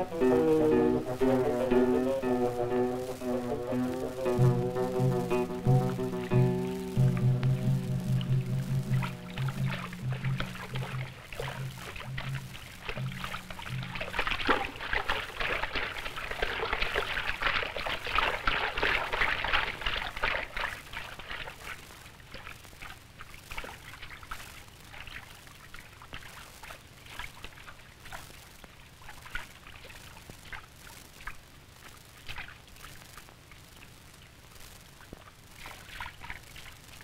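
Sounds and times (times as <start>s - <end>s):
water splashing and sloshing: 7.0s - 31.4s, 35.1s - 37.0s.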